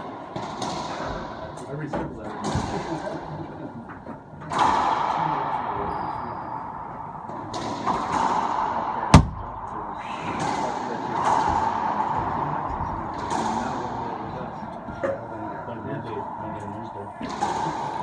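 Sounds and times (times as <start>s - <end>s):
racquetball smacks echoing: 7.4s - 9.7s.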